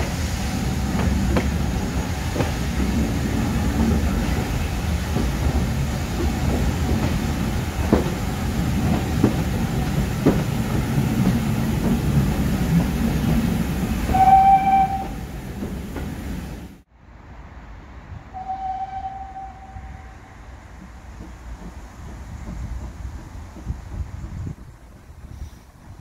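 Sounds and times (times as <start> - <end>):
wheels clicking over rail joints: 0.0 - 16.3, 19.8 - 26.0
train rumbling in tunnel: 0.0 - 26.0
locomotive whistle: 14.1 - 15.2, 18.4 - 20.2.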